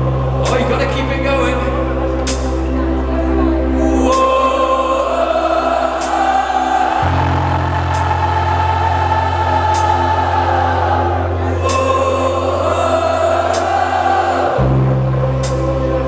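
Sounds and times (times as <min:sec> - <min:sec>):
keyboard chords: 0:00.0 - 0:16.0
person singing: 0:03.7 - 0:08.3, 0:11.3 - 0:16.0.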